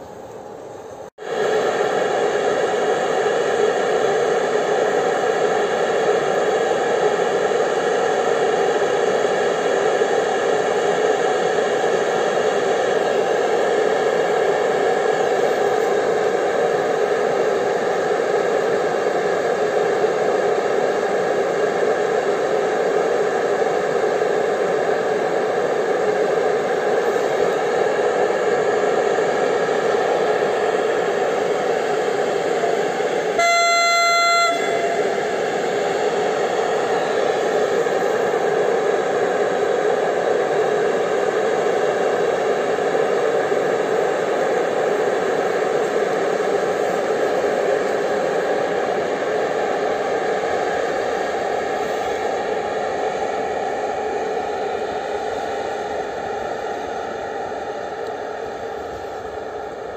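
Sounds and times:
locomotive cooling blowers whine: 0.0 - 59.9
locomotive horn blast: 33.4 - 35.7.

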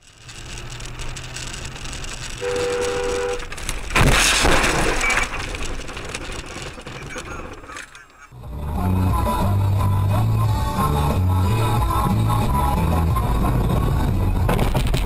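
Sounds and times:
car road and engine noise: 0.0 - 4.2, 5.0 - 15.0
loud car crash: 2.2 - 8.3, 14.3 - 15.0
car horn: 2.3 - 3.5.

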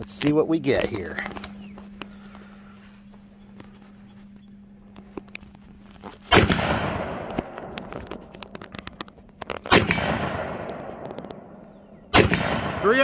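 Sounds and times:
rifle shots with echo: 6.3 - 9.0, 9.6 - 13.0.

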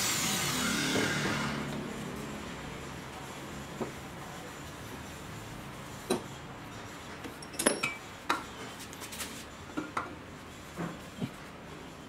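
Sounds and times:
metallic clinks and knocks: 7.4 - 8.0.

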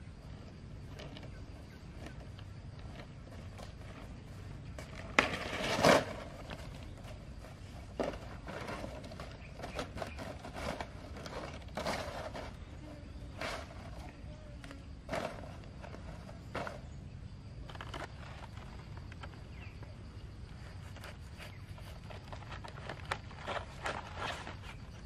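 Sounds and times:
palm fronds rustling: 17.4 - 19.6, 20.9 - 25.0.

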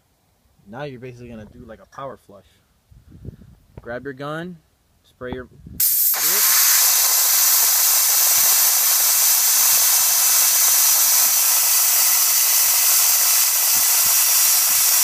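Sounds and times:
spray gun hissing: 5.8 - 15.0.

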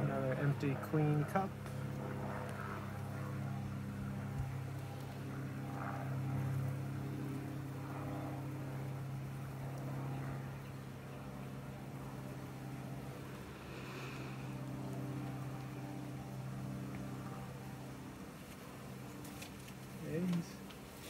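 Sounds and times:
bees buzzing: 8.3 - 18.9.

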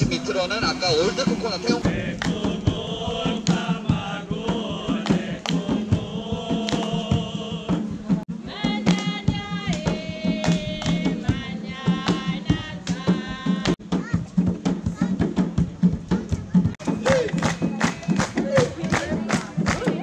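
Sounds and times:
higher voices singing: 0.0 - 13.8, 16.8 - 20.0
steady beat of short strikes: 0.0 - 20.0
group singing in chorus: 1.0 - 13.8, 16.9 - 20.0.

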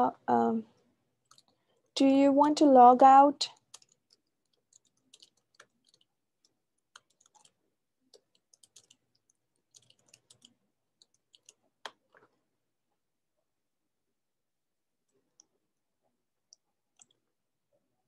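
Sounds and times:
mouse and keyboard clicking: 1.3 - 1.6, 3.5 - 12.3.

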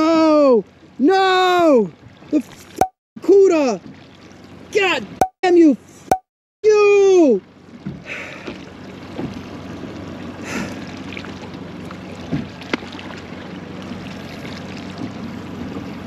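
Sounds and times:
water lapping against boat hull: 0.0 - 6.1, 7.3 - 16.0
short splashes: 8.0 - 16.0.

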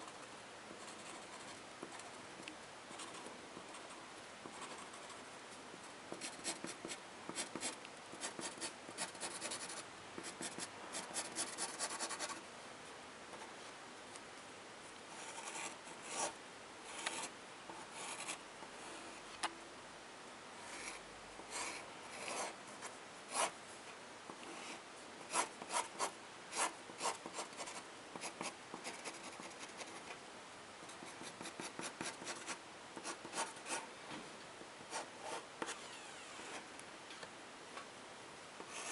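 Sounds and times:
pen scratching on paper: 6.2 - 12.4, 20.7 - 22.5, 24.6 - 30.0, 31.0 - 33.8.

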